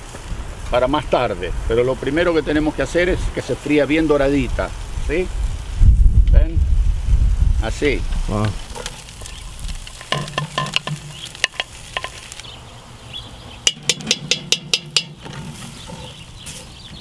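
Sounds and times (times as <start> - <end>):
onions sizzling in a pot: 0.0 - 17.0
wooden spoon stirring: 8.1 - 12.4, 13.7 - 16.8
utensils knocking against pot: 9.9 - 12.2, 13.7 - 16.2.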